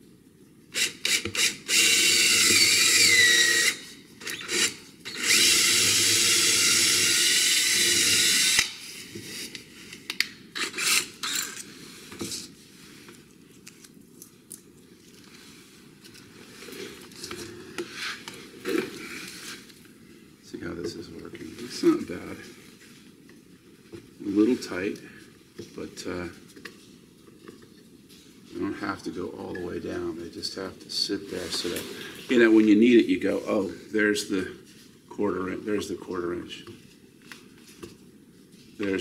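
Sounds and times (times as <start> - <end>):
cordless drill boring into wood: 0.7 - 8.8, 10.6 - 11.6.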